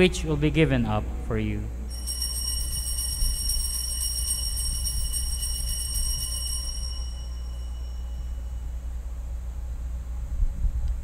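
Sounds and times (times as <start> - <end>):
steady low hum: 0.0 - 11.0
altar bells ringing: 1.9 - 8.9.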